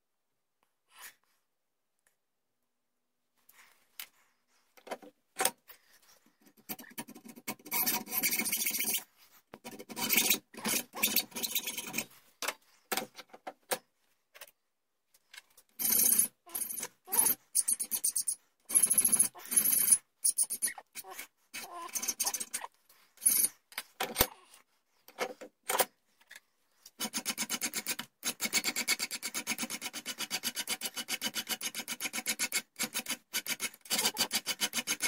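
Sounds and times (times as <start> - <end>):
hand file scraping metal: 5.4 - 12.2, 15.8 - 24.2, 27.0 - 35.0
hacksaw rasping through metal: 6.6 - 12.1, 15.8 - 22.6, 27.0 - 35.0.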